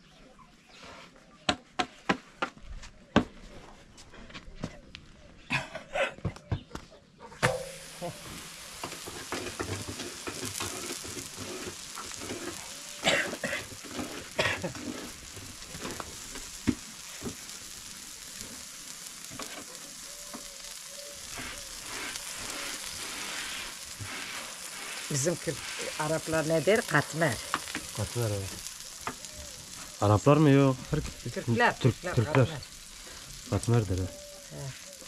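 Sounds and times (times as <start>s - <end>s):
flatbread sizzling on a pan: 7.4s - 35.0s.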